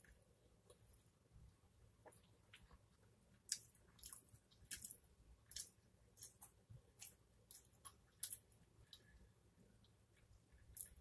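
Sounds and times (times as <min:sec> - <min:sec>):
chewing with wet mouth smacks: 0:02.0 - 0:09.1.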